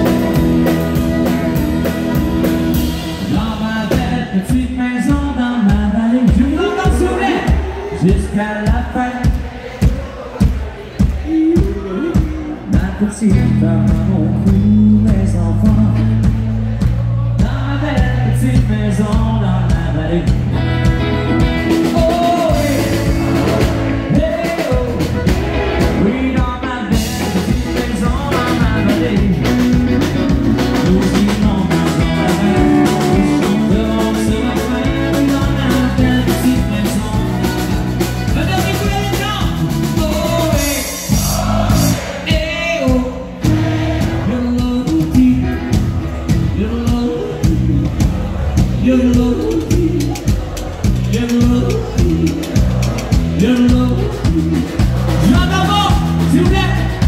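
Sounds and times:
electric guitar: 0.0s - 4.2s, 20.1s - 40.4s
live country band playing: 0.0s - 57.0s
man singing: 0.0s - 57.0s.

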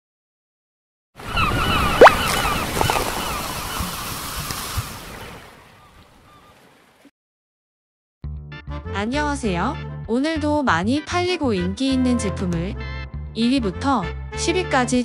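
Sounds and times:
wind: 1.2s - 7.1s
bird calls chirping: 1.3s - 4.0s, 5.6s - 6.8s.

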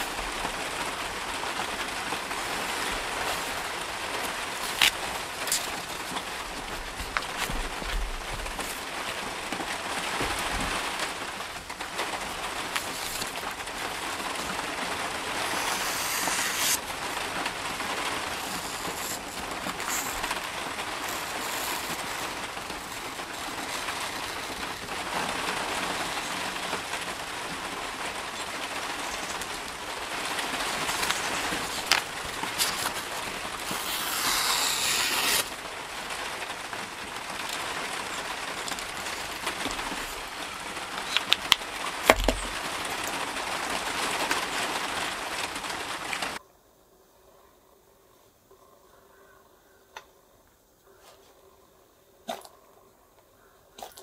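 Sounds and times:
steady hiss: 0.0s - 46.4s
knife slicing paper: 12.3s - 16.9s, 17.7s - 24.8s, 30.2s - 35.6s.

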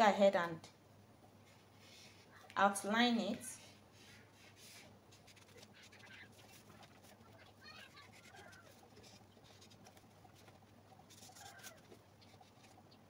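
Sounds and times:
marker scratching on paper: 4.0s - 12.9s
paper rustling: 4.0s - 12.9s.

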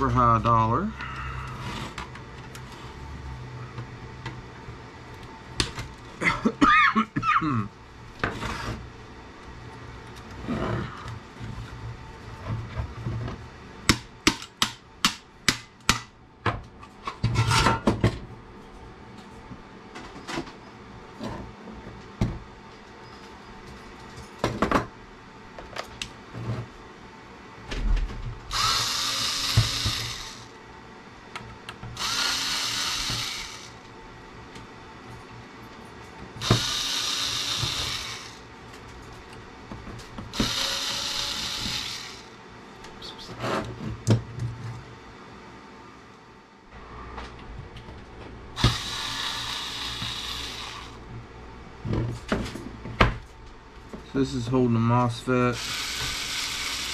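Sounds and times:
electric screwdriver whirring: 28.5s - 30.5s, 32.0s - 33.8s, 36.4s - 38.4s, 40.3s - 42.3s, 48.6s - 51.0s, 55.6s - 56.9s.

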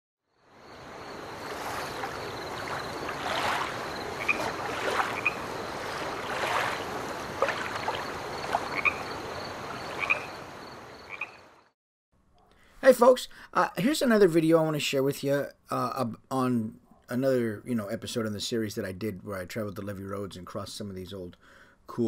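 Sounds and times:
frogs croaking: 0.3s - 11.7s.

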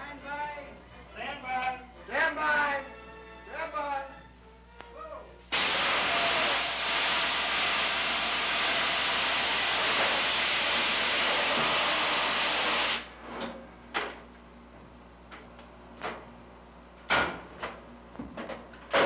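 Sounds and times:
loud hiss of rushing air: 5.5s - 13.1s.

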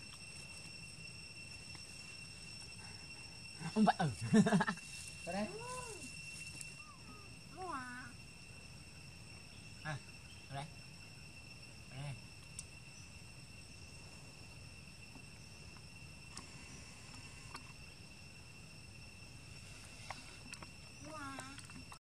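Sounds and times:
insects droning: 0.0s - 22.0s.

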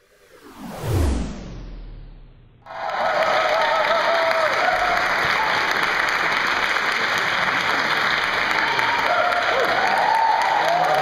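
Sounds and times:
crowd whooping: 2.6s - 11.0s
audience applauding: 2.7s - 11.0s.

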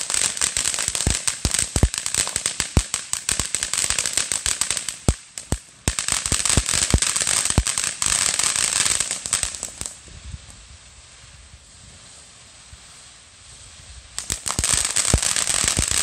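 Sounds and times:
sharp firework pops: 0.0s - 10.6s, 14.2s - 16.0s
firework fountain hissing and crackling: 0.0s - 16.0s.

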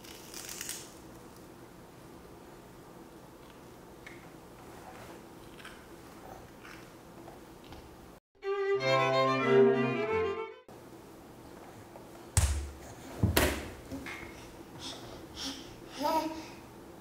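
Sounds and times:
violin and cello music: 8.4s - 10.7s.

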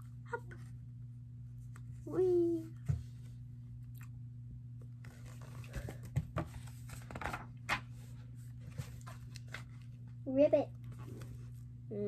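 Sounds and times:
steady low hum: 0.0s - 12.0s
book rustles and taps: 5.0s - 8.0s.

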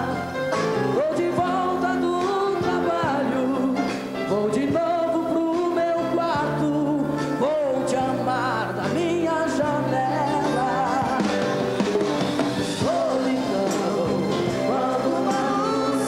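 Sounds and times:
live band with bass and drums: 0.0s - 16.0s
man singing a ballad: 0.9s - 11.7s, 12.8s - 16.0s.

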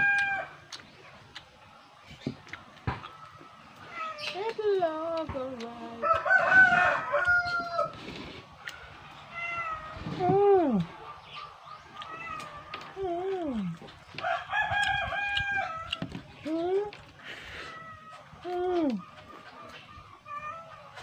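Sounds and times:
rooster crowing: 0.0s - 0.6s, 6.0s - 8.0s, 14.2s - 16.0s.

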